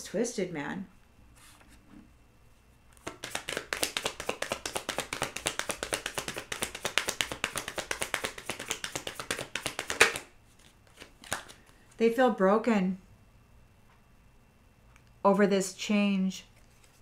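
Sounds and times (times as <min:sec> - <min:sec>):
cards being shuffled: 0:02.9 - 0:11.9, 0:16.6 - 0:17.0.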